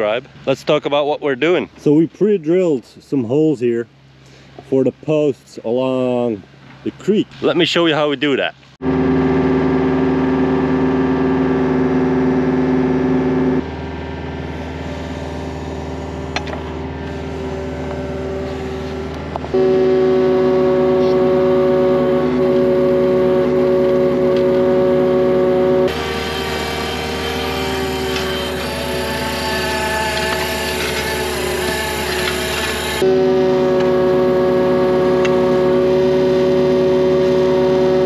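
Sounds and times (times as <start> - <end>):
excavator engine under load: 8.8 - 38.0.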